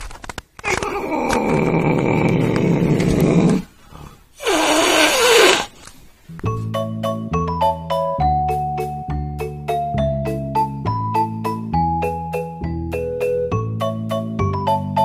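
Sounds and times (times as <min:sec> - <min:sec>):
cat growling: 0:00.7 - 0:05.8
cat yowling: 0:04.4 - 0:05.7.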